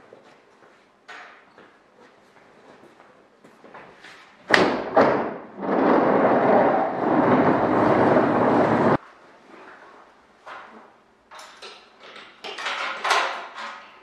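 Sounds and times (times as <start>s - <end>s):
wooden table scraping across floor: 5.6s - 9.0s.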